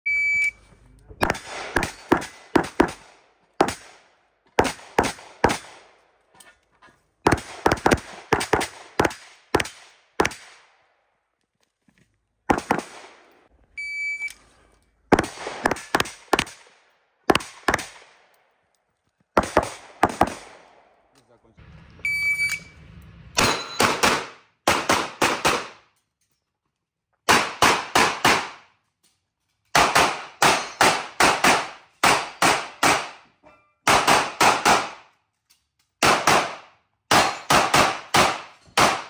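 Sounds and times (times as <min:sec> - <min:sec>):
shot timer beep: 0:00.1 - 0:00.6, 0:13.8 - 0:14.4, 0:22.1 - 0:22.7
pistol shots: 0:01.2 - 0:06.0, 0:07.2 - 0:10.8, 0:12.5 - 0:13.4, 0:15.1 - 0:18.3, 0:19.4 - 0:21.1, 0:23.4 - 0:25.9, 0:27.3 - 0:28.7, 0:29.8 - 0:33.2, 0:33.8 - 0:35.1, 0:36.0 - 0:39.0.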